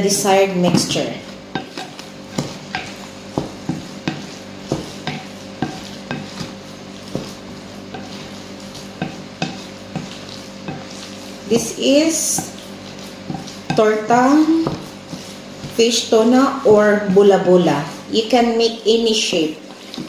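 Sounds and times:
stirring thick mixture: 0.0 - 20.0
wooden spoon knocking glass bowl: 0.7 - 6.5, 9.0 - 10.9.

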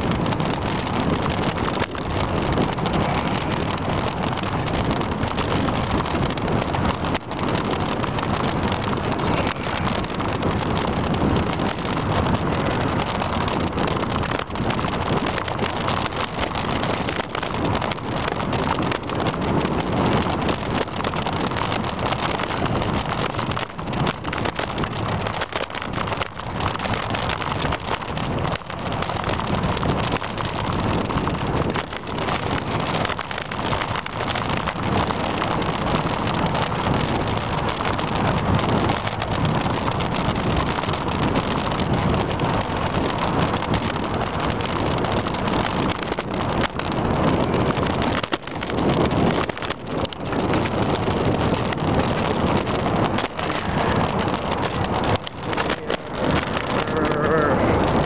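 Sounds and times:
wind rushing over microphone: 0.0 - 58.0
tyres hissing on wet pavement: 53.0 - 58.0.

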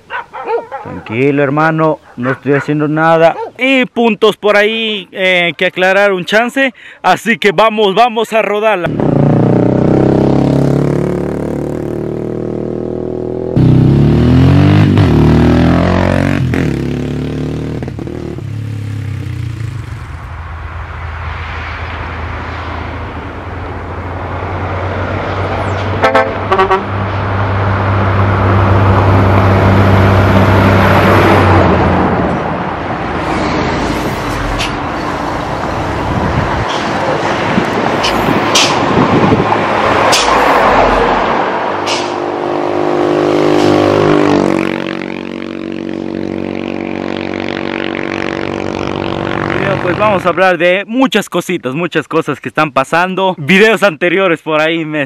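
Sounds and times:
motorcycle engine revving: 8.9 - 20.4, 33.2 - 50.2.

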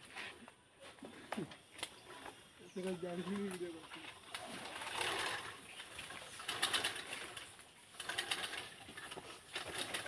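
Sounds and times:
water splashing into jerrycan: 4.0 - 8.7.

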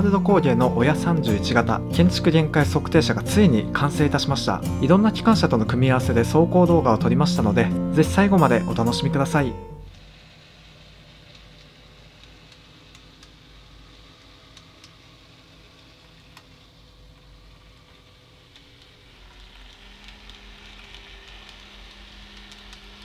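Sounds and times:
low locomotive hum: 0.0 - 23.0
model train motor hum: 8.9 - 23.0.

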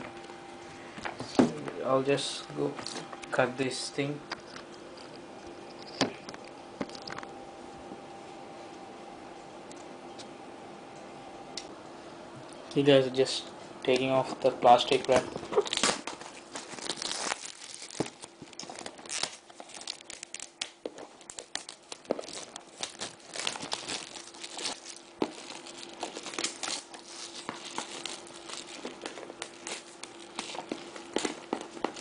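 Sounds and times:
plastic wrapping crinkling: 14.0 - 32.0
plastic tearing: 14.8 - 32.0.

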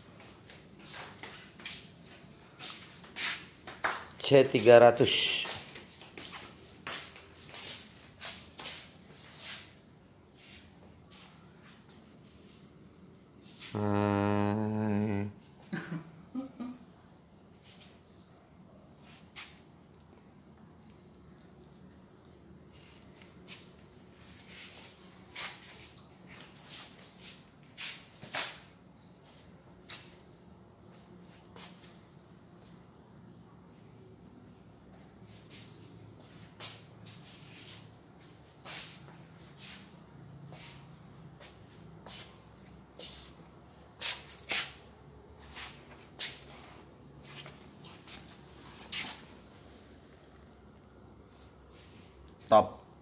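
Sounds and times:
scuffing and rustling: 0.0 - 12.7, 22.7 - 31.9, 35.0 - 52.4
footsteps shuffling on tiled floor: 0.0 - 12.8, 22.7 - 32.0, 34.8 - 53.0
faint low hum: 9.1 - 27.8.

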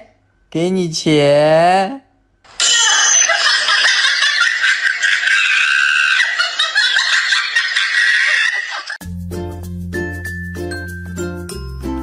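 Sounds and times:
laughter sound effect: 2.6 - 9.0.

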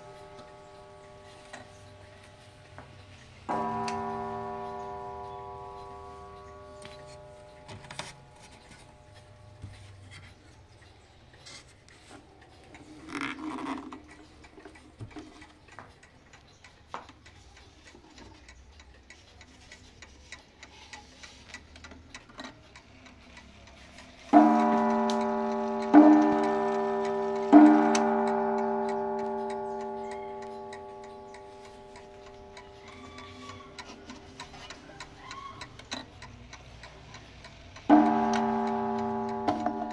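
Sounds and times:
clock gong strikes: 0.0 - 9.7, 24.3 - 33.1, 37.9 - 39.9
clock ticking faintly: 0.0 - 39.9.

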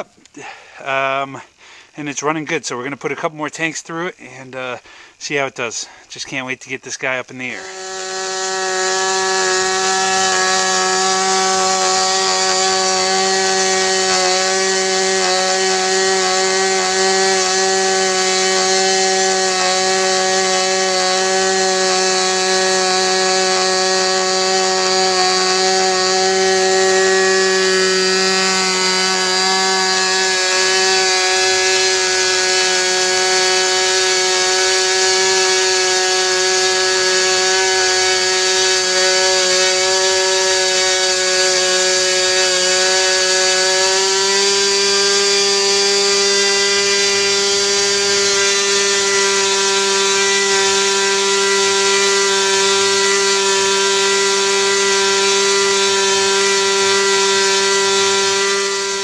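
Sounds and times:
model airplane engine running: 7.5 - 59.0.

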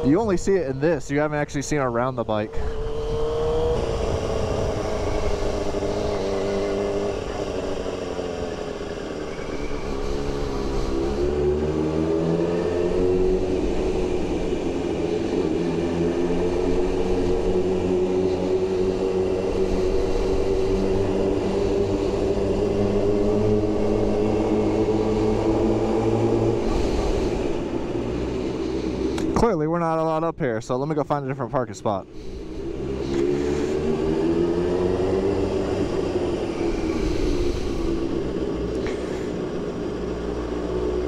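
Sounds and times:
motorcycle engine at low speed: 0.0 - 41.0.

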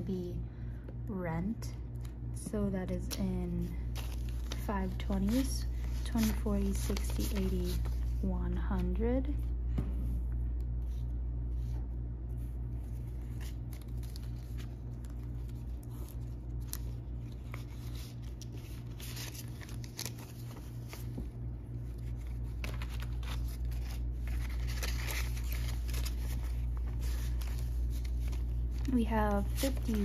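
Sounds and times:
steady low hum: 0.0 - 30.0
banknotes rustling: 3.4 - 9.0, 12.4 - 30.0.

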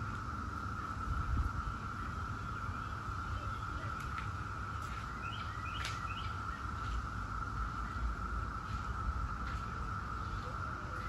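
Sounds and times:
cicadas droning in chorus: 0.0 - 11.0
bird chirps: 4.9 - 6.7.

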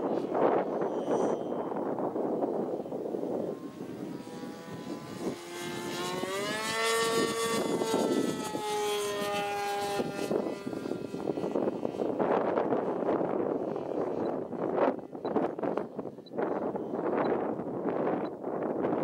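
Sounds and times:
model plane engine buzzing: 0.0 - 19.0
wind on microphone: 0.0 - 19.0.

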